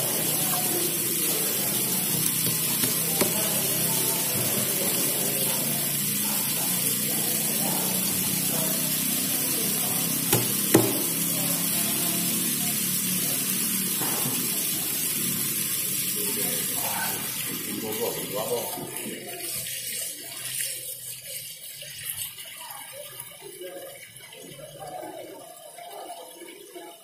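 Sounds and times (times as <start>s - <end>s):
steady watery hiss: 0.0s - 23.8s
knife knocking on wooden block: 10.4s - 11.1s.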